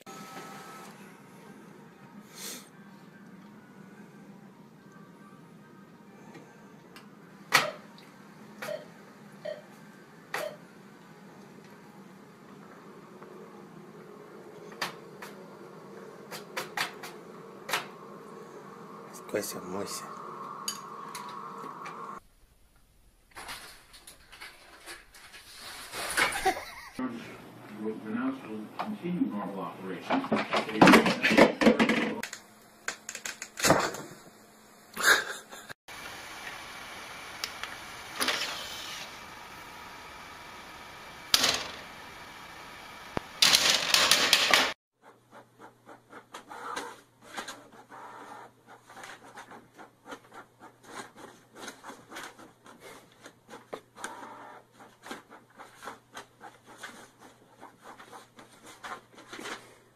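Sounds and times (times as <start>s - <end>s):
printer low hum: 0.0s - 2.2s, 2.8s - 22.2s, 35.9s - 44.8s, 54.0s - 54.9s.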